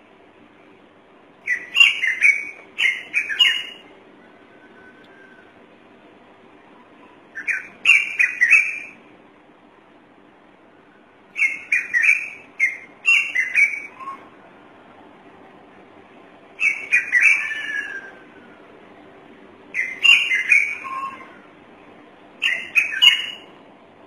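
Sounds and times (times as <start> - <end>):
bird shrill whistled notes: 1.5 - 3.8, 7.4 - 9.0, 11.4 - 14.3, 16.6 - 18.2, 19.8 - 21.4, 22.4 - 23.5.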